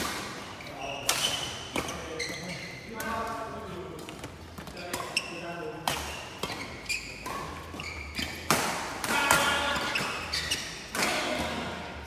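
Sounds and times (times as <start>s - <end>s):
rackets hitting shuttlecock: 4.2s - 11.6s.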